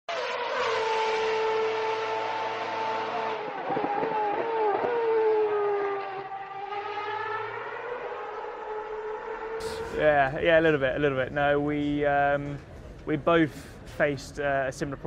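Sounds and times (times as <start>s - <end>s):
racing car engine at high revs: 0.1s - 10.0s.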